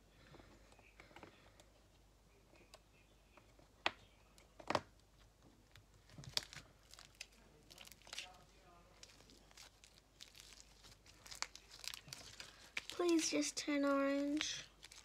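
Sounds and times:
slime squishing by hand: 4.6s - 15.0s.

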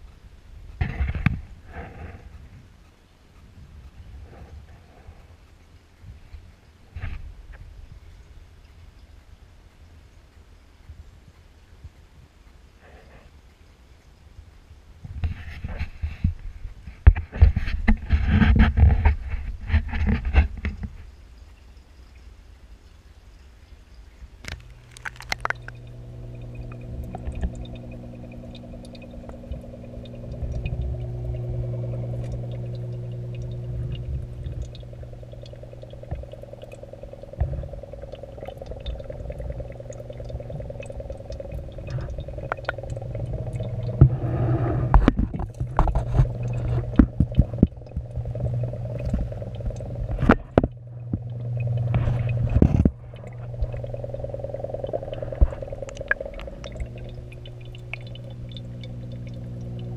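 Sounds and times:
aquarium hum: 14.0s - 22.3s, 23.0s - 59.9s
water bubbling: 24.3s - 59.9s.

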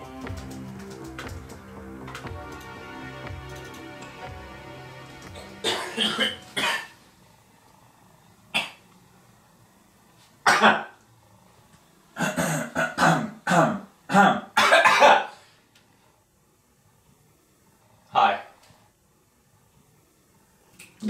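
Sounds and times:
man coughing: 5.4s - 6.9s, 12.2s - 15.3s.

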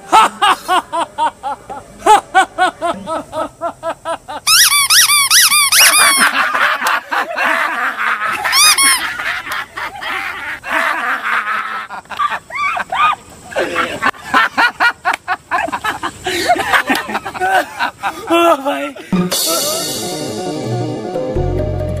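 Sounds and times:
men laughing loudly: 0.0s - 4.6s, 5.7s - 20.1s.

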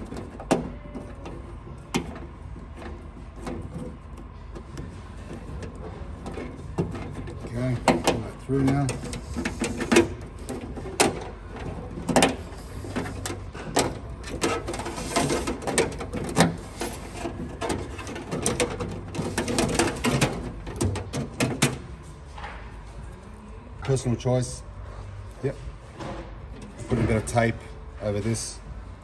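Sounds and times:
cable rustling: 0.0s - 23.2s.

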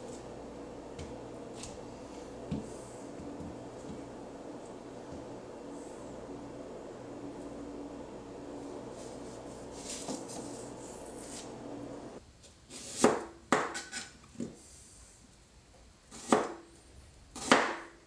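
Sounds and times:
steady low hum: 0.0s - 12.2s
knife chopping on cutting board: 12.7s - 14.1s, 16.1s - 16.6s, 17.4s - 17.9s.

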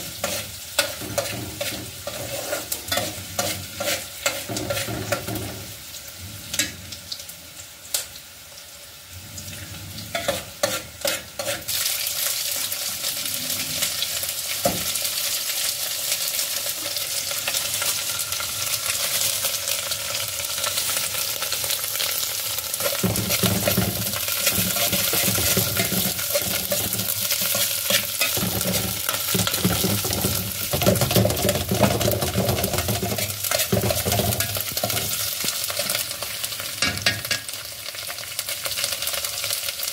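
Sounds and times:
food sizzling in a pot: 0.0s - 39.9s
metal spoon scraping a pot: 0.2s - 5.4s, 10.1s - 11.8s, 22.8s - 35.2s.

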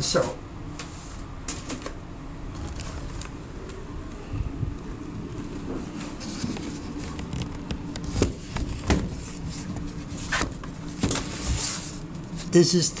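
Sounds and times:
low steady hum: 0.0s - 13.0s
handling noise rubbing microphone: 3.9s - 12.3s.

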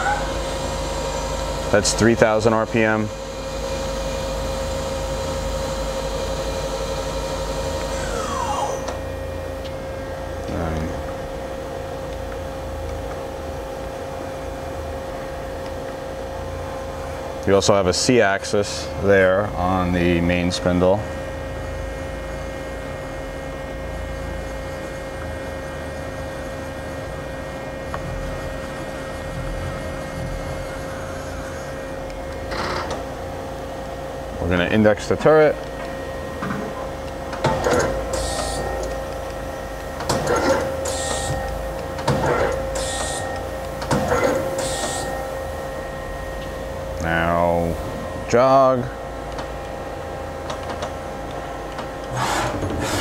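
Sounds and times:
lathe spindle whine: 0.0s - 15.4s, 16.2s - 53.0s
machine hum: 0.0s - 53.0s.

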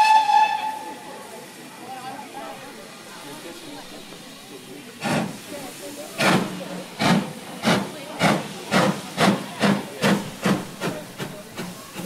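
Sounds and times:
steam hissing: 0.0s - 12.0s
steam locomotive exhaust chuffs: 3.4s - 12.0s.

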